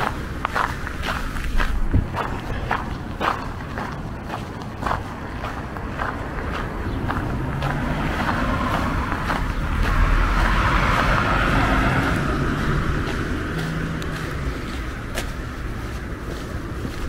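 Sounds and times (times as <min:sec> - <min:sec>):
car driving past: 0:06.2 - 0:15.2.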